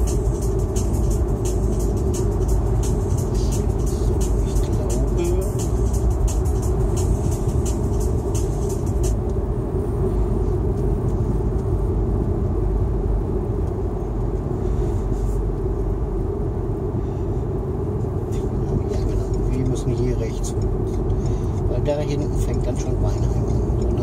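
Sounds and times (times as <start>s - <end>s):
car road and engine rumble: 0.0s - 24.0s.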